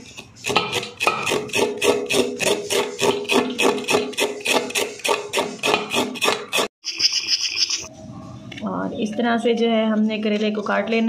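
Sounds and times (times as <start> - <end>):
knife scraping vegetable skin: 0.0 - 7.9.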